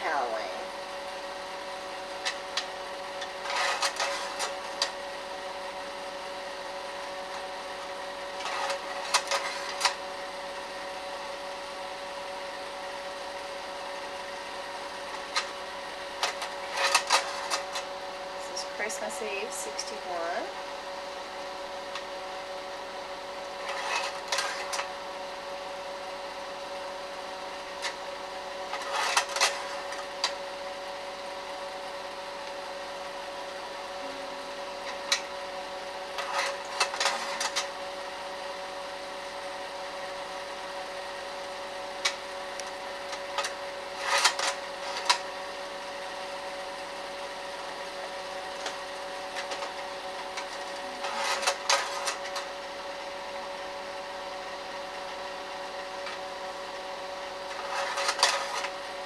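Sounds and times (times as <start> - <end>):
projector motor and fan hum: 0.0 - 59.0
mechanical clicks and clacks: 42.0 - 45.2.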